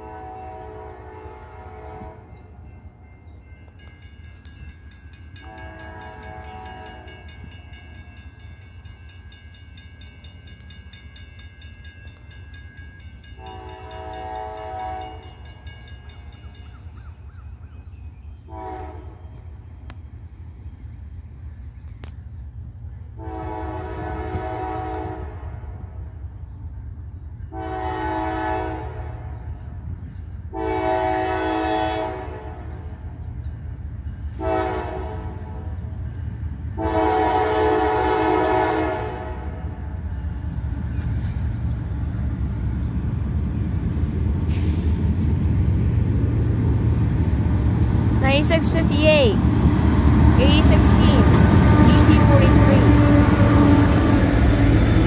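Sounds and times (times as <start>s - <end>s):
locomotive air horn blasts: 0.0s - 2.3s, 5.4s - 7.2s, 13.4s - 15.3s, 18.5s - 19.2s, 23.2s - 25.7s, 27.5s - 29.3s, 30.5s - 32.6s, 34.4s - 35.6s, 36.8s - 39.6s, 50.5s - 54.4s
low rumble of locomotives: 0.0s - 55.0s.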